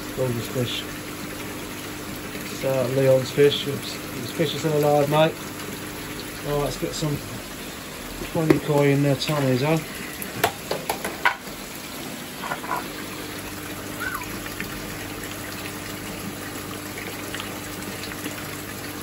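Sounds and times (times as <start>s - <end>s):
water gushing into a tank: 0.0s - 19.0s
clicks and splashes: 8.2s - 11.6s, 14.0s - 19.0s.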